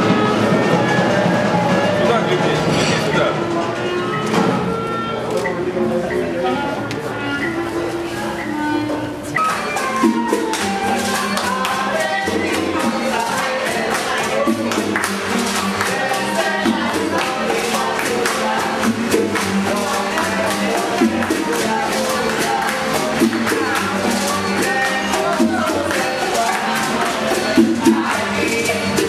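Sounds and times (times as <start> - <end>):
flute: 0.0 - 12.4
strummed acoustic guitars: 0.0 - 29.0
woman singing: 6.5 - 29.0
hand percussion beat: 7.5 - 29.0.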